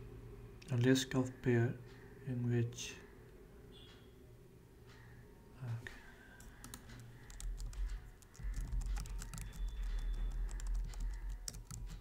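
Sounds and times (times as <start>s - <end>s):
computer keyboard typing: 6.4s - 12.0s.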